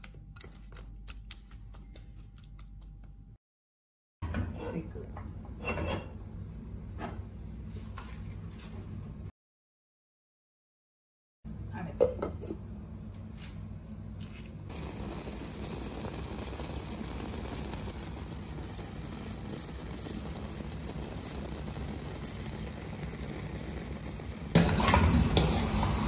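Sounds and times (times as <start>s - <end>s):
metal ladle scraping pot: 5.6s - 6.2s
gas stove hum: 11.5s - 26.0s
food hissing in pot: 14.7s - 26.0s.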